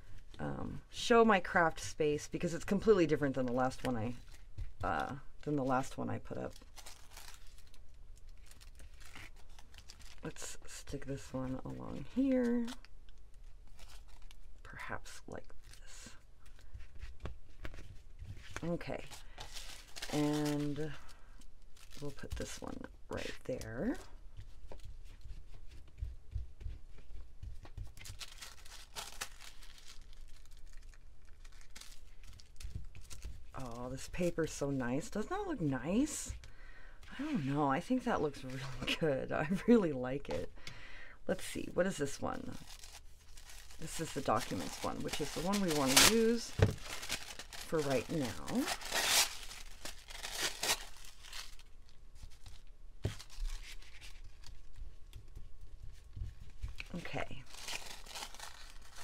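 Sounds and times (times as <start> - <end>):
thin paper rustling: 3.1 - 10.4, 15.6 - 21.1, 27.6 - 35.1, 42.4 - 55.4, 56.4 - 59.0.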